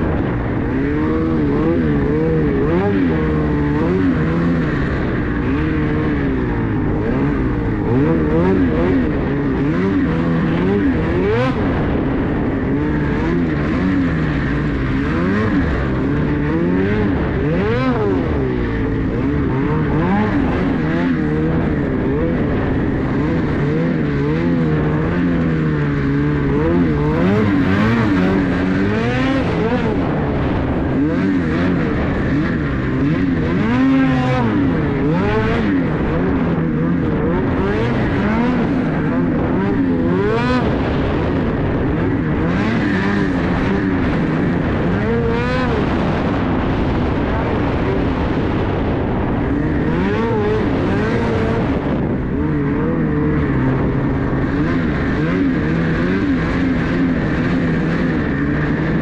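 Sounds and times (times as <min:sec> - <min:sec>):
snowmobile engine revving: 0:00.0 - 0:59.0.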